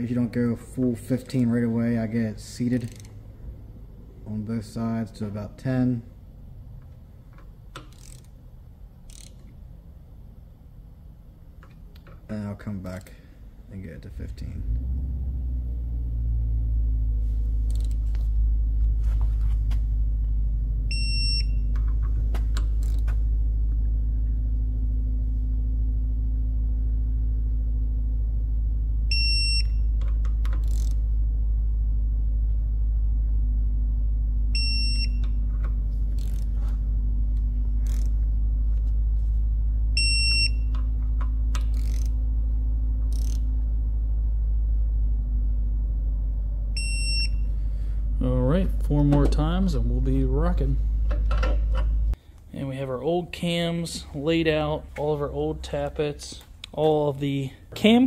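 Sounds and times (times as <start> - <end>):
steady low hum: 0.0 - 58.0
tool clicks: 2.8 - 3.2, 7.3 - 8.4, 9.0 - 9.6, 17.7 - 18.2, 30.0 - 31.0, 37.8 - 38.2, 40.7 - 42.2, 43.0 - 43.5
torque wrench beeping: 9.1 - 9.4, 20.9 - 21.8, 29.1 - 31.0, 34.6 - 35.4, 40.0 - 40.8, 43.1 - 43.5, 46.8 - 47.5.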